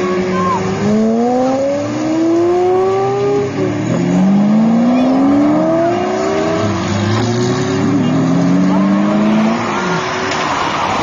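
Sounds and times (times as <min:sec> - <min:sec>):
sports car accelerating hard: 0:00.1 - 0:11.0.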